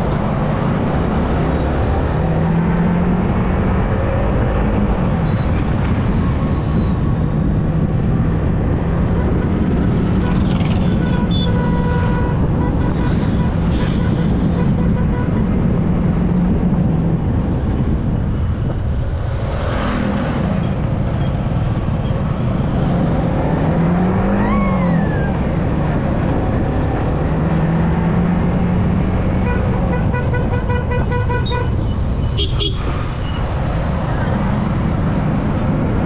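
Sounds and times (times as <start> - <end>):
wind and road noise: 0.0 - 36.0
traffic horns tooting: 9.1 - 15.6, 29.4 - 33.4.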